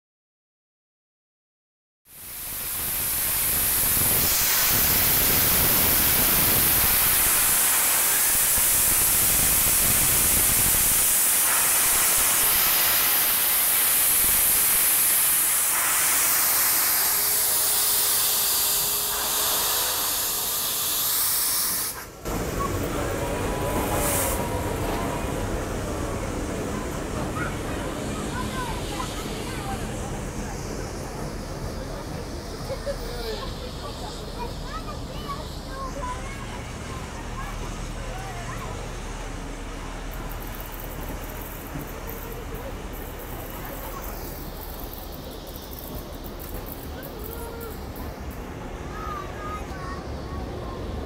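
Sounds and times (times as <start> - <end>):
steam locomotive hissing steam: 2.1 - 51.0
train sounds: 2.2 - 51.0
crowd noise: 21.9 - 51.0.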